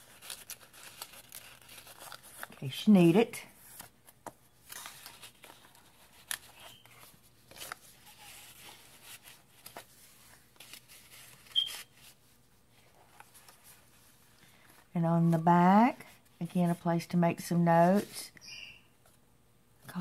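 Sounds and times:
paper pages rustling: 0.0 - 2.8, 3.5 - 14.9
brief high squeak: 11.6 - 11.9.

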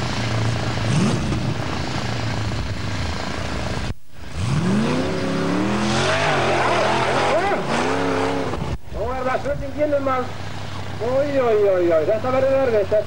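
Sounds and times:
buggy engine revving: 0.0 - 13.0.

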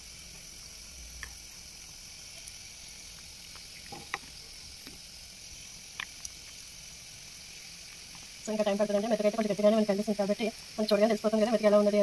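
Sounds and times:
rice boiling with hiss and pops: 0.0 - 12.0.

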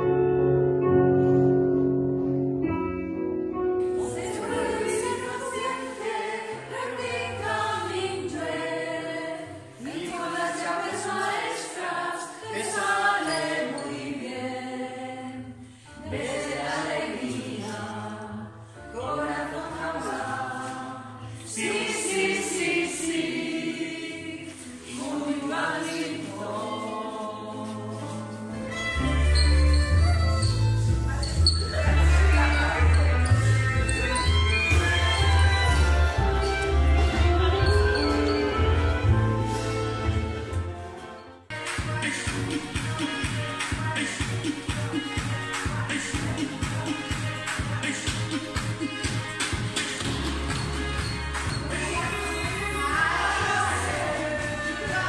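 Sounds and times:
choir singing: 3.8 - 28.5, 51.6 - 55.0.

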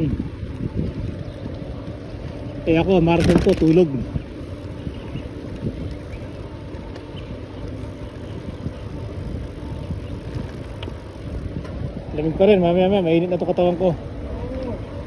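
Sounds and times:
wind on microphone: 0.0 - 13.0
bicycle tyres rolling on asphalt: 0.0 - 15.0
faint ticks: 10.2 - 11.8.

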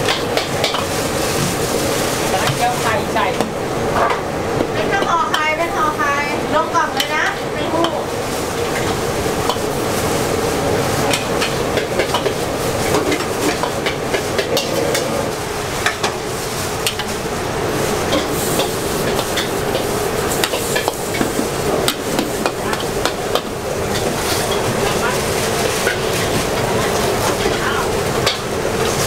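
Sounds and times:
food sizzling: 0.0 - 29.0
metal spatula scraping a wok: 22.8 - 29.0.

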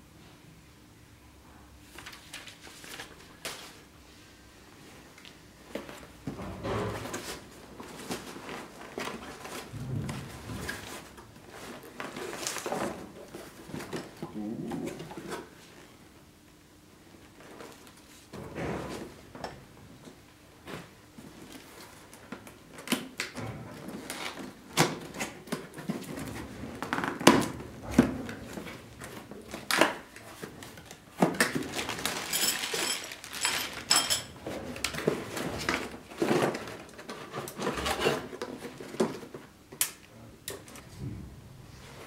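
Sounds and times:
packaging rustling and crinkling: 7.0 - 15.9, 28.3 - 39.5.

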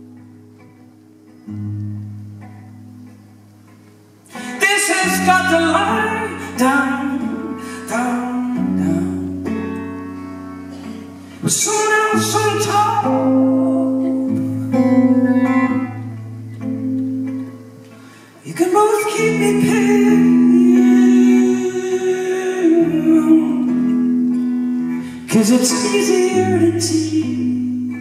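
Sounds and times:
acoustic guitar strumming: 0.0 - 28.0
man singing: 4.4 - 10.0, 11.4 - 16.1, 18.4 - 24.4, 25.0 - 28.0.

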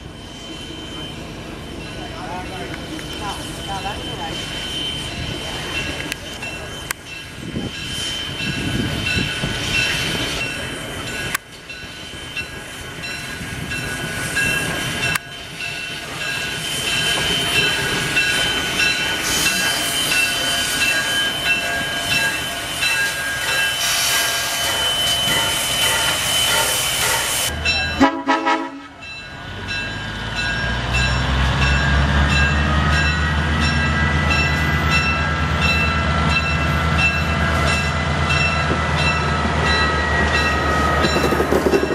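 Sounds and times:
steam hiss: 2.6 - 27.6.

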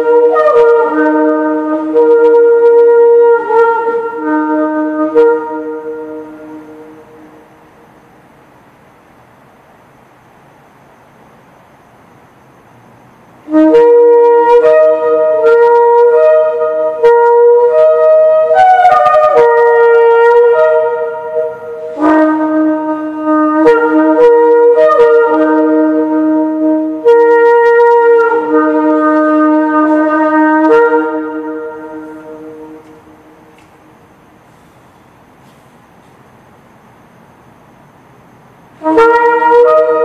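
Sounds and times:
horn blown in quick notes: 13.5 - 33.6.

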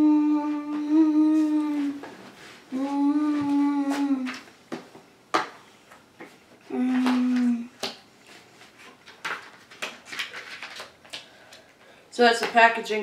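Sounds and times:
person humming a note: 0.0 - 2.0, 2.7 - 4.4, 6.7 - 7.7.

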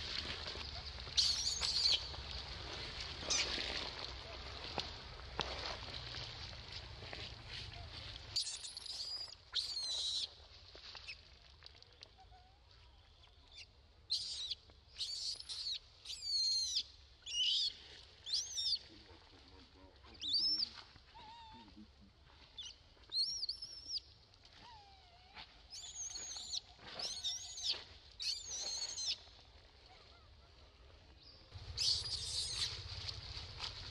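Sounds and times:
infant monkey squealing: 1.2 - 2.1, 8.4 - 10.3, 14.1 - 17.7, 25.7 - 29.2, 31.8 - 32.9.

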